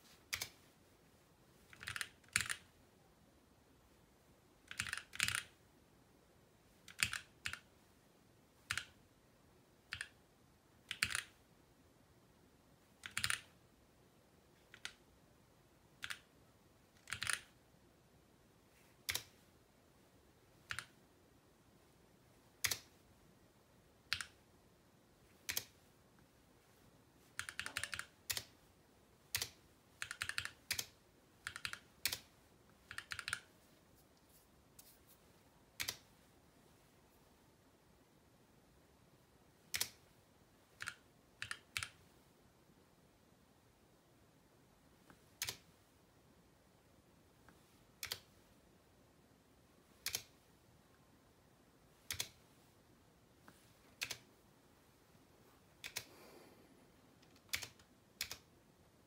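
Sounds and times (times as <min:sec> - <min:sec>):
mechanical keyboard key clicks: 0:01.7 - 0:02.6, 0:04.7 - 0:05.5, 0:17.0 - 0:17.5, 0:50.0 - 0:50.3.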